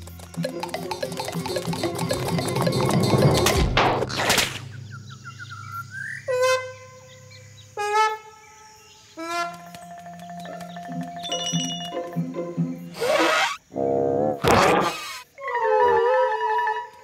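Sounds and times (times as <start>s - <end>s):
light music: 0.0s - 3.6s, 9.4s - 13.0s
rising squeak: 11.2s - 12.0s, 13.0s - 13.6s.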